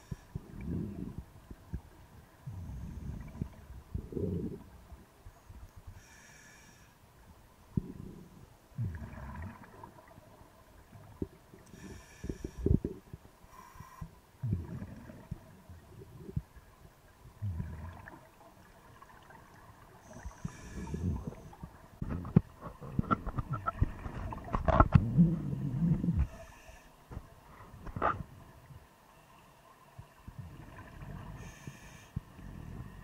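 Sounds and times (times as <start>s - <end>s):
exhaled bubbles gurgling: 0.0s - 5.1s, 7.7s - 13.2s, 14.4s - 16.7s, 17.3s - 26.7s, 30.2s - 33.0s
diver inhaling through regulator: 11.7s - 12.9s, 20.0s - 21.6s, 31.4s - 33.0s.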